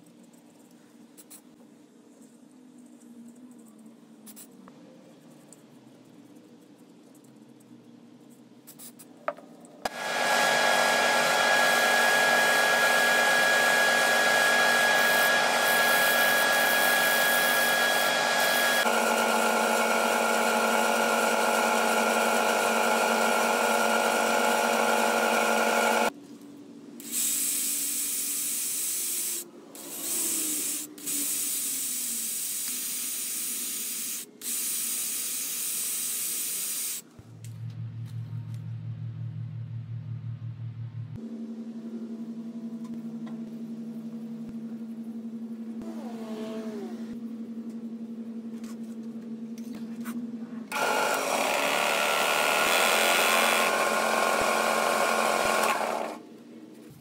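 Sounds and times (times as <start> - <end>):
cordless drill whining: 9.9 - 26.1, 50.7 - 56.2
wood lathe running: 9.9 - 26.1, 50.7 - 56.2.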